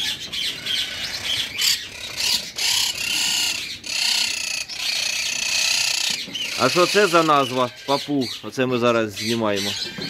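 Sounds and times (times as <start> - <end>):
parakeets screeching: 0.0 - 10.0.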